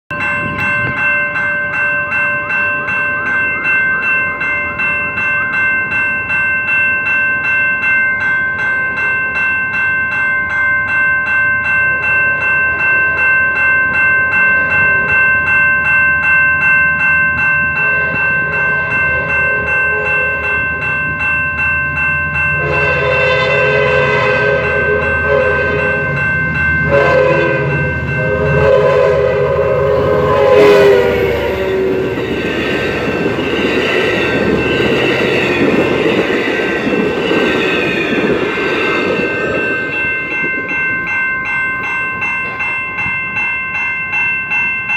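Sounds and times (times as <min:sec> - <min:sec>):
crossing warning bell ringing: 0:00.1 - 0:44.9
low rumble of train: 0:00.1 - 0:44.9
locomotive horn blasts: 0:19.3 - 0:20.6, 0:22.6 - 0:26.2, 0:26.8 - 0:32.2.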